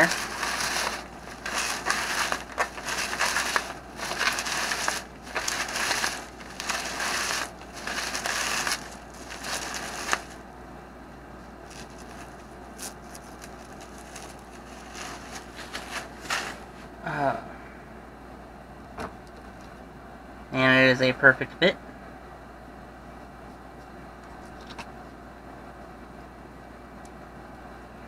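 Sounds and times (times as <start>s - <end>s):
bubble wrap crackling: 0.0s - 10.4s, 11.6s - 16.6s.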